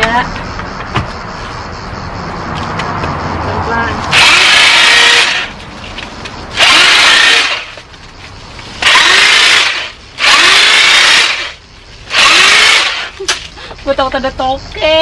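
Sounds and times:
electric saw cutting ivy: 0:04.1 - 0:05.5, 0:06.5 - 0:07.8, 0:08.8 - 0:13.2.

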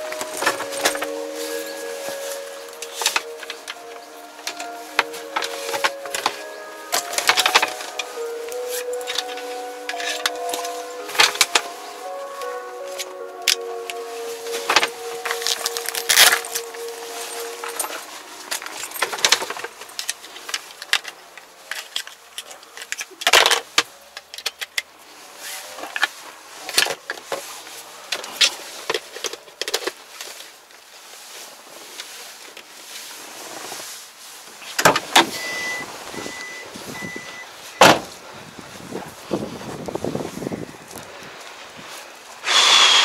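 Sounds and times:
plastic bag rustling: 0:00.0 - 0:20.9
short electronic beeps: 0:35.4 - 0:37.9.

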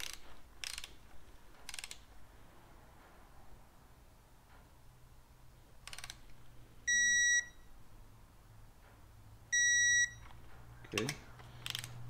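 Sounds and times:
torque wrench beep: 0:06.9 - 0:07.6, 0:09.6 - 0:10.3
torque wrench ratchet clicks: 0:11.6 - 0:12.0.

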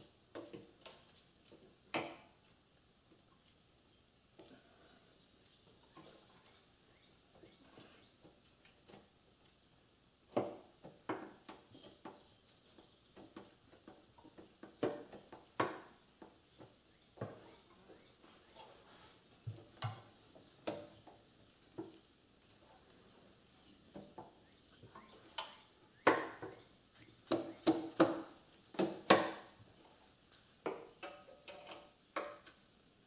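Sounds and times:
metallic clicks and knocks: 0:30.7 - 0:32.6.

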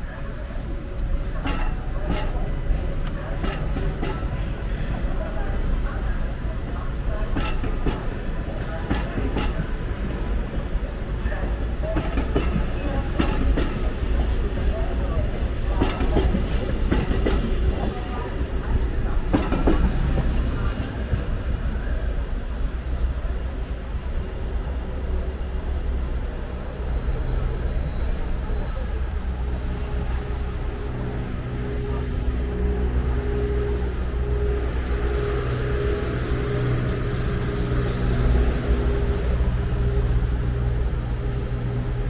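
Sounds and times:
train rumbling past: 0:00.0 - 0:42.0
train wheels clacking over rail joints: 0:01.3 - 0:04.7, 0:07.1 - 0:10.5, 0:11.7 - 0:21.2.

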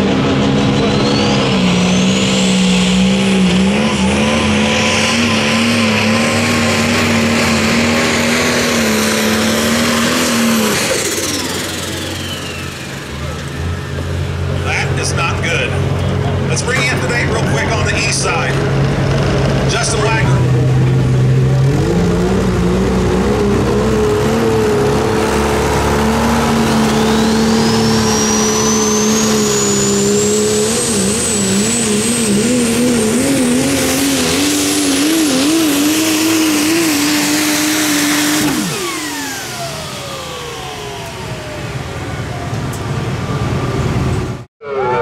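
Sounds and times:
diesel truck engine at full power: 0:00.0 - 0:45.0
turbo whistle: 0:26.8 - 0:32.1.

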